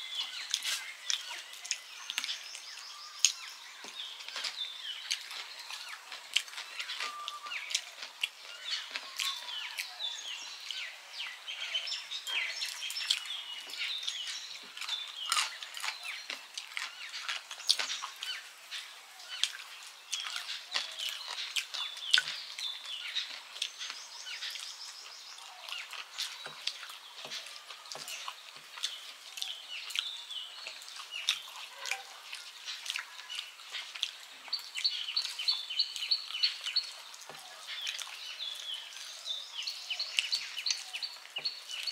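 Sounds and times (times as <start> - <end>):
birds chirping: 0.0 - 41.9
chewing: 0.1 - 41.9
fingers mixing rice on plates: 0.2 - 9.9, 12.6 - 39.2.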